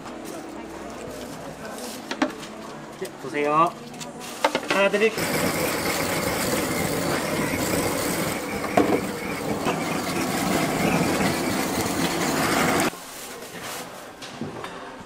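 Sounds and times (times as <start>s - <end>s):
blowtorch flame blowing: 5.1s - 12.9s.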